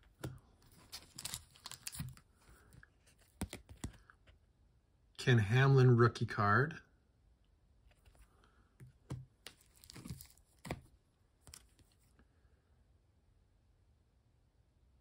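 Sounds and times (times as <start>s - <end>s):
plastic sleeves crinkling: 0.2s - 4.0s, 9.4s - 12.0s.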